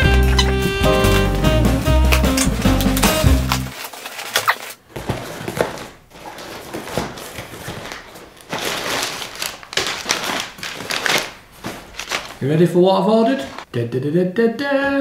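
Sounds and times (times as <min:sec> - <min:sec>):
cardboard box being ripped open: 0:02.1 - 0:05.9.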